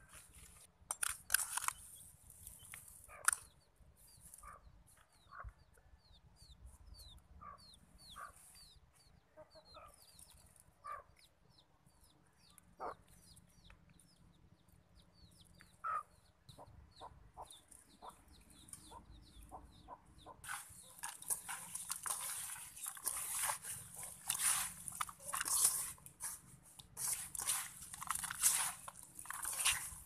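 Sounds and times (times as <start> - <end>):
chicks peeping: 15.2 - 21.0.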